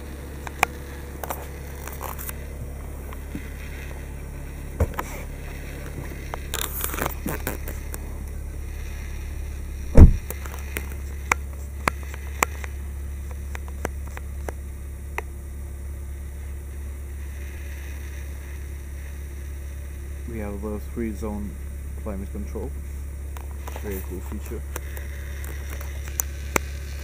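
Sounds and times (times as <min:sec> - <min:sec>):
steady low hum: 0:00.0 - 0:27.0
car door shutting: 0:09.9 - 0:10.3.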